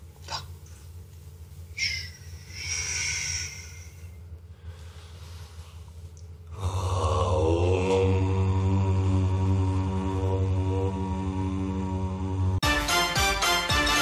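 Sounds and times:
long hissing breath out: 0:01.8 - 0:05.6
man chanting: 0:06.6 - 0:12.6.

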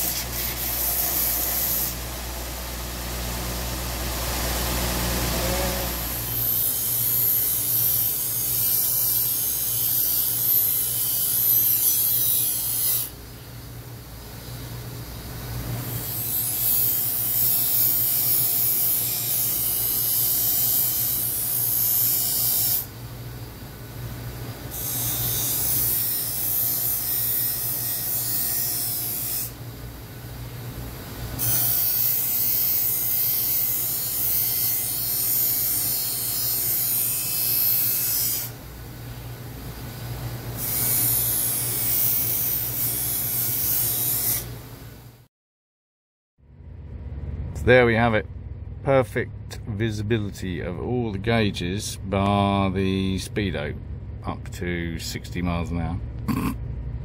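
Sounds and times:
bench grinder motor hum: 0:00.0 - 0:13.0.

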